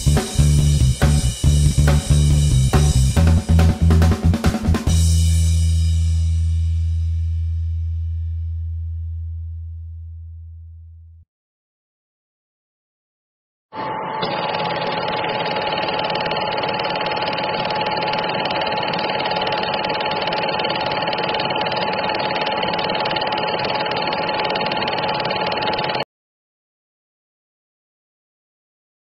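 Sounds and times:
film projector whirring clatter: 0:14.2 - 0:26.0.

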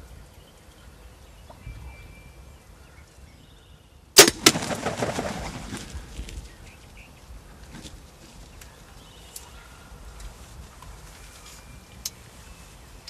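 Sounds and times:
arrow smack: 0:04.2 - 0:05.4
bird wing-flapping and rustling: 0:04.3 - 0:06.6.

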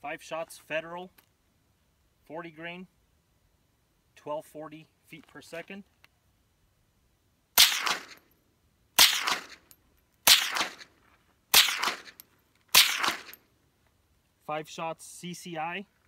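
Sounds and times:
suppressed rifle shots: 0:07.6 - 0:08.2, 0:09.0 - 0:09.6, 0:10.2 - 0:10.9, 0:11.5 - 0:13.4.

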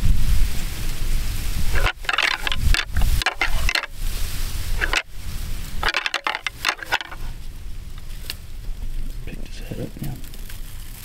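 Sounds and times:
wind rumble on microphone: 0:00.0 - 0:05.8
antlers clashing: 0:01.7 - 0:04.0, 0:04.8 - 0:05.1, 0:05.8 - 0:07.4.

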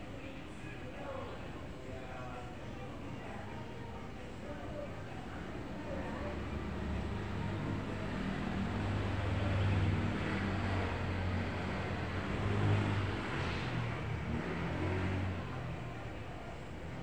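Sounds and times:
vehicle engine passing: 0:07.7 - 0:15.9.

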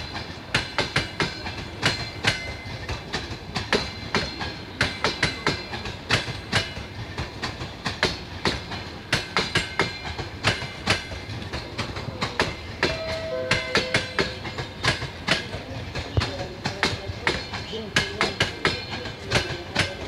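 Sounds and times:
train rumble: 0:00.0 - 0:20.0
train wheels clacking over rails: 0:00.0 - 0:20.0
two-note tone: 0:12.8 - 0:14.6.

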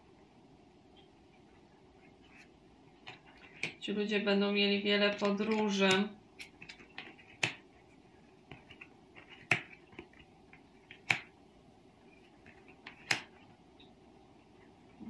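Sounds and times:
cards clicking on table: 0:03.0 - 0:03.8, 0:05.1 - 0:07.7, 0:08.5 - 0:11.3, 0:12.3 - 0:13.4
light taps of cards: 0:05.2 - 0:07.7, 0:08.5 - 0:11.3.

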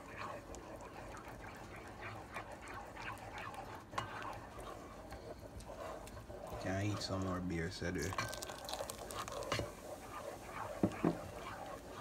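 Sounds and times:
batter stirred with wet slapping: 0:00.0 - 0:12.0.

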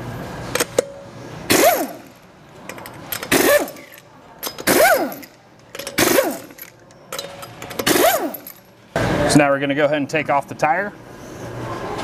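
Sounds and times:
pneumatic impact wrench bursts: 0:01.5 - 0:02.2, 0:03.2 - 0:06.7, 0:07.7 - 0:08.6.

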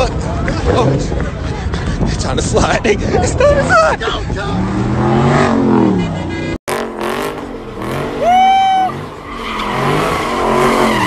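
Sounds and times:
car engine revving: 0:04.4 - 0:11.0.

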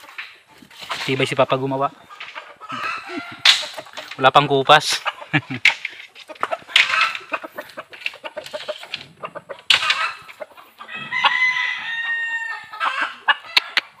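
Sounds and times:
rooster crowing: 0:02.7 - 0:03.5, 0:10.8 - 0:13.2.

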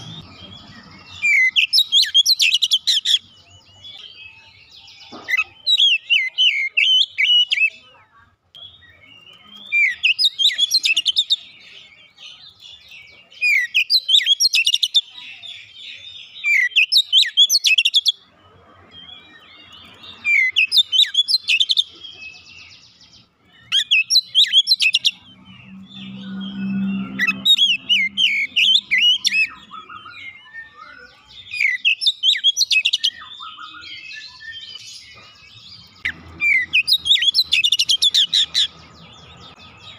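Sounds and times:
bird singing whistles: 0:26.0 - 0:34.8.

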